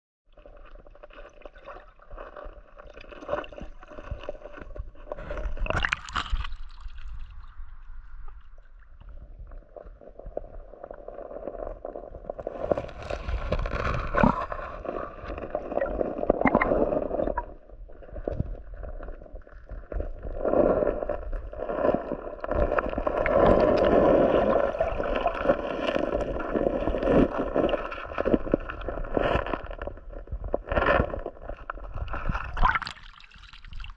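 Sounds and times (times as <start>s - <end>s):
gravel clicks and knocks: 0.4s - 33.9s
muffled underwater gurgling: 12.4s - 18.4s, 19.9s - 29.4s.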